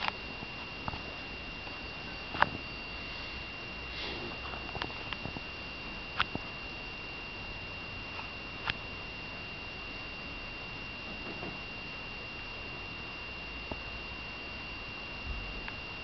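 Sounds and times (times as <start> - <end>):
faint high-pitched whine: 0.0 - 16.0.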